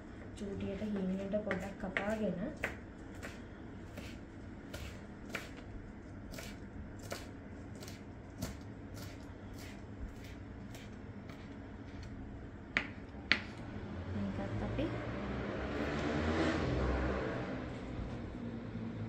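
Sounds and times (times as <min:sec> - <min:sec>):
knife cutting herbs: 0:00.8 - 0:05.6, 0:06.3 - 0:12.2.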